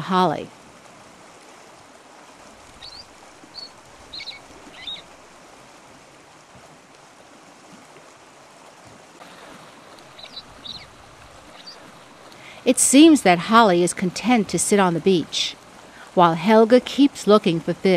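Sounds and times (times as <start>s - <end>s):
gull calls: 2.8s - 5.1s, 10.0s - 11.9s.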